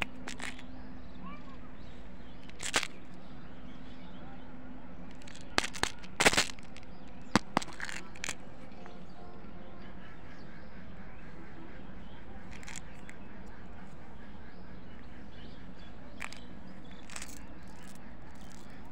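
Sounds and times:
plastic toy egg clicks and knocks: 0.0 - 0.7, 2.4 - 3.1, 5.1 - 8.4, 12.5 - 13.2, 16.2 - 18.9.

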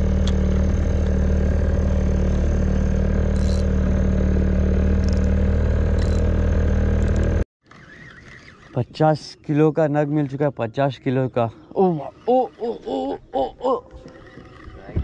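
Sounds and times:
boat engine drone: 0.0 - 9.7.

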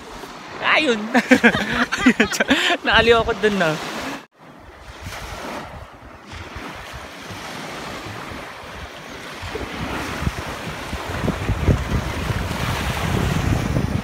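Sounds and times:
small waves washing on sand: 0.0 - 14.0
wind buffeting microphone: 4.6 - 14.0.

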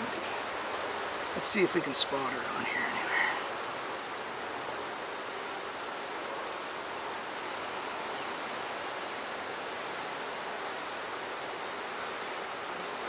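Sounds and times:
honeybees humming: 0.0 - 8.4.

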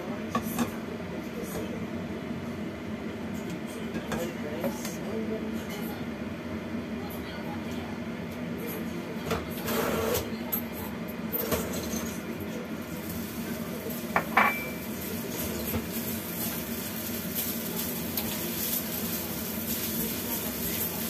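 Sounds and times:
kitchenware clatter: 9.3 - 12.6, 13.9 - 21.0
spatula stirring in frying pan: 14.8 - 21.0.

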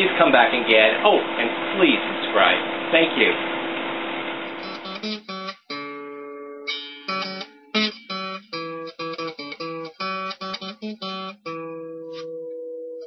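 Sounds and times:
acoustic guitar strumming chords: 4.5 - 13.0.

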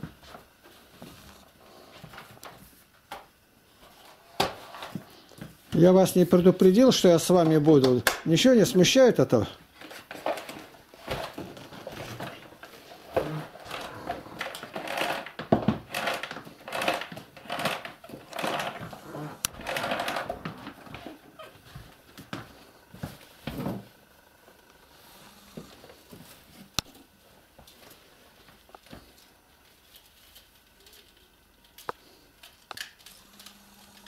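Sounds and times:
vacuum cleaner being handled: 9.8 - 22.4.

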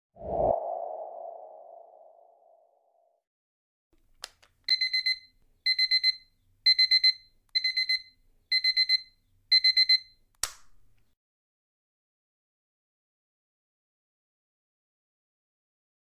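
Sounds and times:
digital alarm clock beeping: 4.7 - 10.2.

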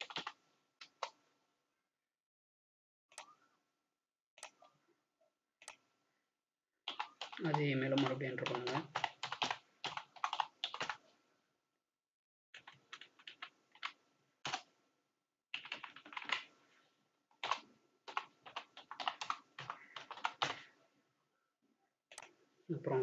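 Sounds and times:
typing on computer keyboard: 0.0 - 1.2, 6.9 - 11.0, 12.6 - 14.7, 15.5 - 16.5, 17.4 - 20.7.

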